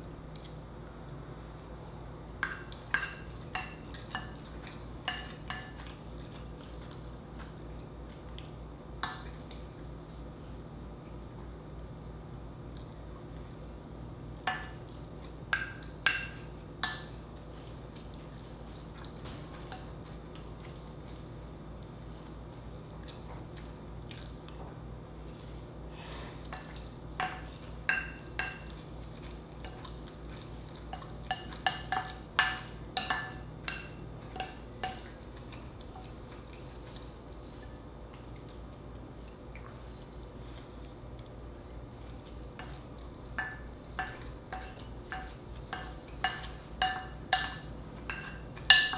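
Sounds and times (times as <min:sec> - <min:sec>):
wooden spoon knocking glass bowl: 0:45.1 - 0:48.9.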